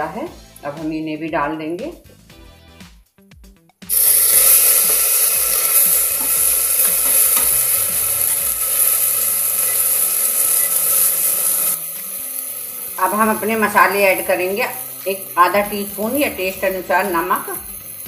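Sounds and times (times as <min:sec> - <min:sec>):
vegetables sizzling in hot ghee: 0:03.9 - 0:18.0.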